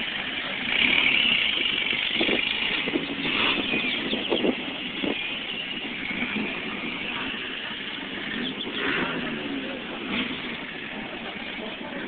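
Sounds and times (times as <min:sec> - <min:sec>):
street noise hiss: 0:00.0 - 0:12.0
car engine driving past: 0:05.7 - 0:12.0.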